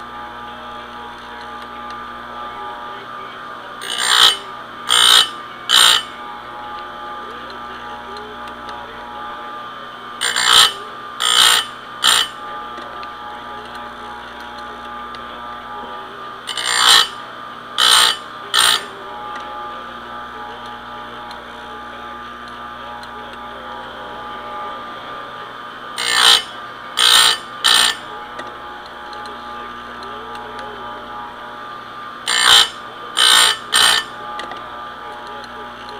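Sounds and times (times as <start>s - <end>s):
grinder motor hum: 0.0s - 35.9s
grinding wheel on chain teeth: 3.8s - 6.2s, 10.2s - 12.5s, 16.4s - 17.2s, 17.8s - 18.9s, 26.0s - 29.2s, 32.2s - 34.5s.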